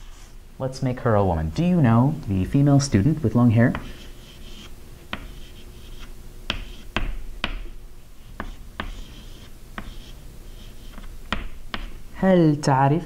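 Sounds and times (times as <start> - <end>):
chalk scratching on chalkboard: 3.7 - 7.1, 8.2 - 12.0
chalk tapping on board: 3.7 - 7.7, 8.3 - 12.0.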